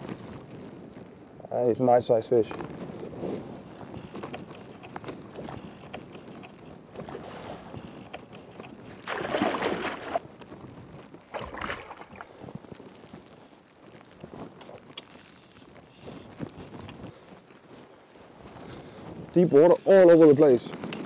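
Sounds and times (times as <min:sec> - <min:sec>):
choppy river water: 0:03.1 - 0:16.8.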